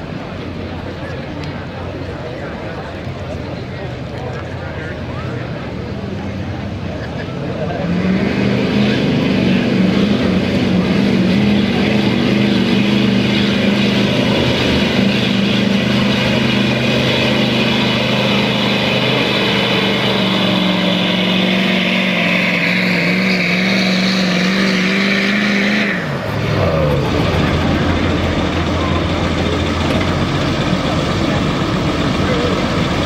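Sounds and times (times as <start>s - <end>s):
diesel engine under heavy load: 0.0s - 33.0s.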